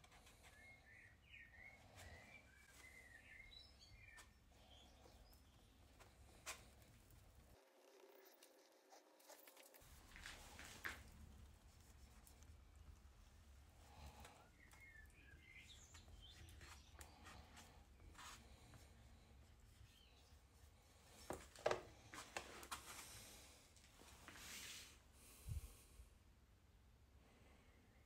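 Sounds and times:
faint bird chirps: 0.0s - 6.8s, 13.8s - 21.2s.

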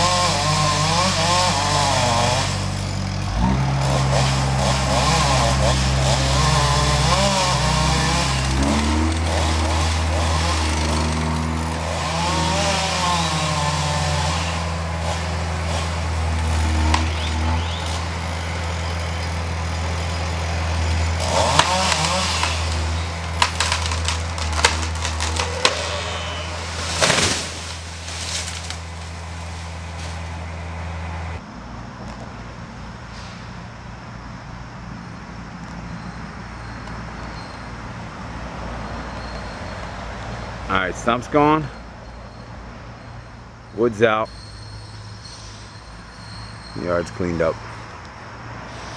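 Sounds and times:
chainsaw cutting wood: 0.0s - 30.2s
wood cracking: 1.3s - 19.4s, 20.8s - 30.3s
heavy thud of falling tree: 23.4s - 28.7s.

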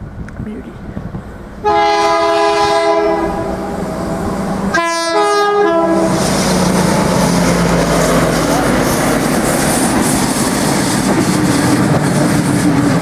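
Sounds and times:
train running noise: 0.0s - 13.0s
train horn chord: 1.6s - 3.8s, 4.7s - 6.4s.

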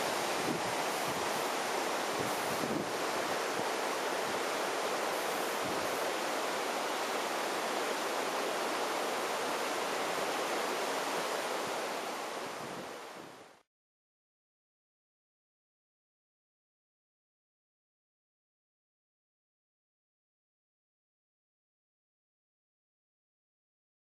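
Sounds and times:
wind buffeting microphone: 0.0s - 3.7s
waterfall rushing over rocks: 0.0s - 13.6s.

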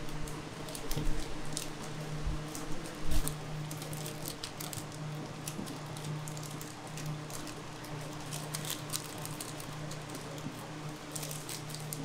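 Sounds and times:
scraper cutting crunchy candy: 2.5s - 12.0s.

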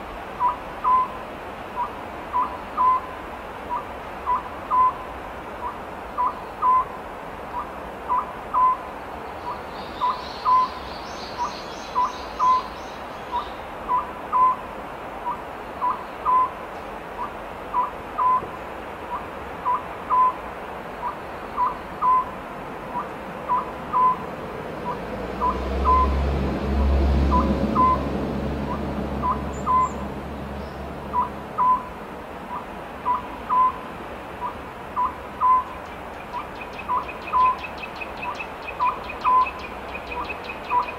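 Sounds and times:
owl hooting: 0.4s - 1.2s, 1.8s - 3.1s, 3.7s - 5.0s, 5.6s - 7.0s, 7.6s - 8.8s, 13.3s - 14.6s, 15.2s - 16.6s, 17.2s - 18.5s, 19.1s - 20.4s, 21.0s - 24.2s, 24.8s - 26.1s, 27.3s - 30.0s, 31.1s - 31.9s, 32.5s - 33.8s, 34.4s - 35.8s, 36.4s - 40.9s.

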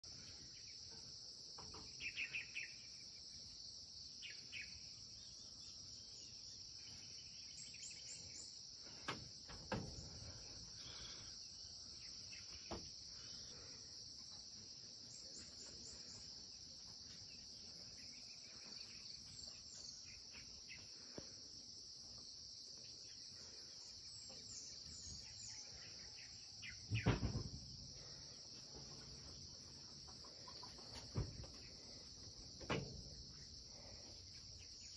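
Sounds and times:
insects chorus: 0.0s - 34.9s
bird chirps: 0.1s - 3.3s, 22.8s - 27.4s.

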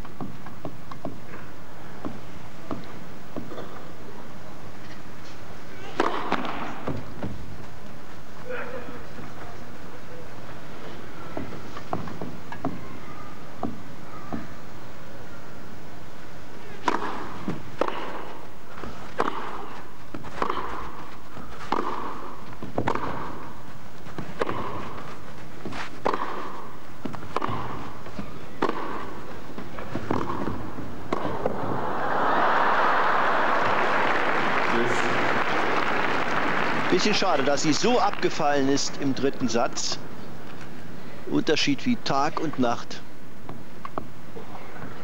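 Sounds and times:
racket hitting tennis ball: 5.9s - 7.4s, 16.8s - 31.8s
tennis ball bouncing: 16.8s - 18.4s, 19.1s - 31.8s
crowd applause: 31.3s - 38.7s.

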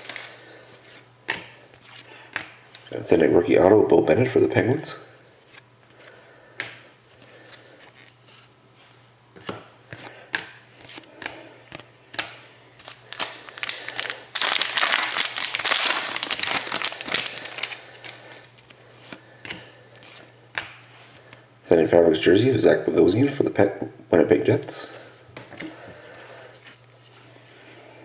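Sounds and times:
soft card rustles: 7.1s - 8.5s
foil pack crinkling: 12.8s - 18.8s.

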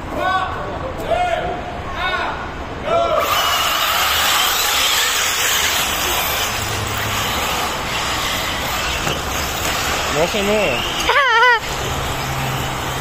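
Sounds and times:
rc buggy motor whine: 3.2s - 13.0s.

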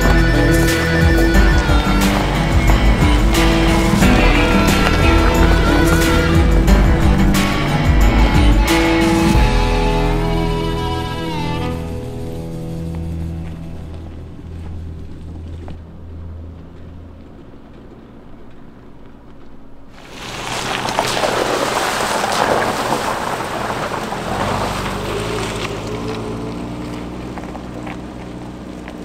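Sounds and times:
car engine humming low: 0.0s - 29.0s
car splashing through water: 19.9s - 29.0s.

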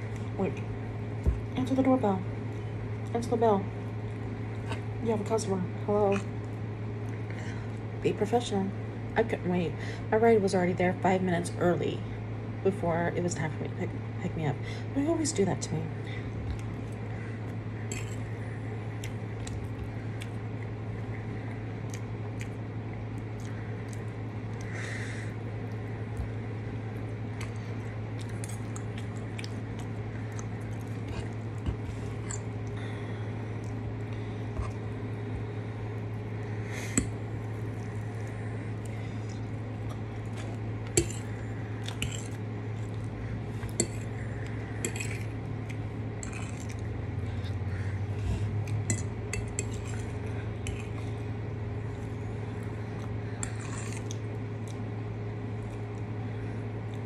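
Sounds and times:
low hum: 0.0s - 57.0s
chewing: 16.5s - 24.7s, 27.3s - 34.9s, 36.9s - 47.7s, 52.6s - 54.8s.

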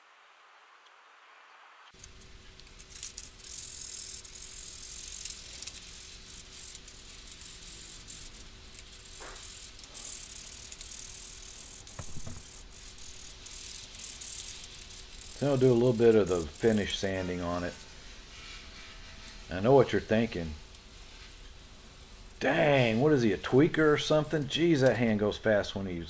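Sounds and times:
sanding sponge scratching wood: 15.4s - 21.4s.

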